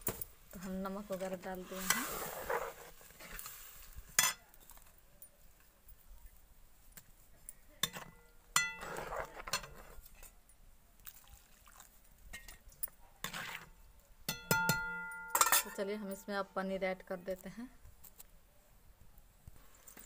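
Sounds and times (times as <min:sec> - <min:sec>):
metal spoon scraping pots: 0:00.6 - 0:03.5, 0:07.8 - 0:10.4, 0:13.2 - 0:13.7, 0:14.3 - 0:16.2
ringing metal clinks: 0:14.3 - 0:16.2.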